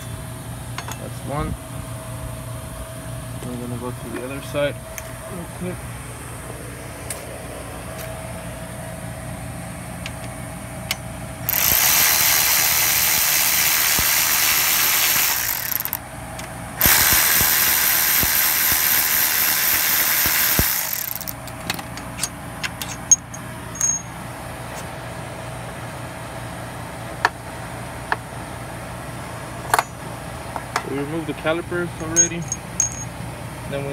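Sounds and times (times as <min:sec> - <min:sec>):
tool and socket clinking: 0:00.8 - 0:01.1, 0:20.3 - 0:24.1, 0:29.7 - 0:30.0, 0:32.0 - 0:33.1
power ratchet spinning: 0:11.4 - 0:16.0, 0:16.8 - 0:21.6.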